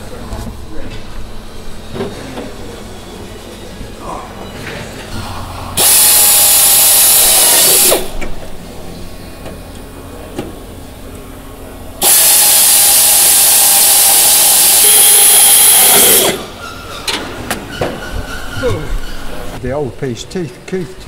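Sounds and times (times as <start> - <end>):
pneumatic air drill whining: 5.2 - 8.2, 12.0 - 16.9.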